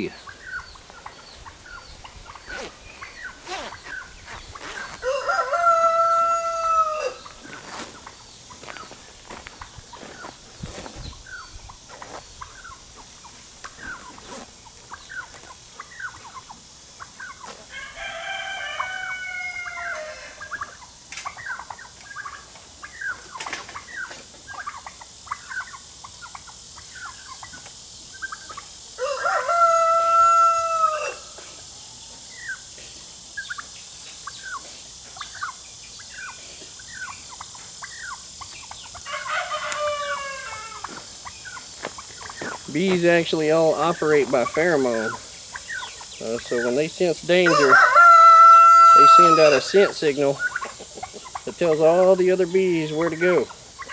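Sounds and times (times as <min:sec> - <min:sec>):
clucks and chirps: 0:00.0 - 0:53.9
rooster crowing: 0:04.9 - 0:07.4, 0:17.7 - 0:20.7, 0:29.0 - 0:31.4, 0:39.0 - 0:41.0, 0:47.3 - 0:49.9.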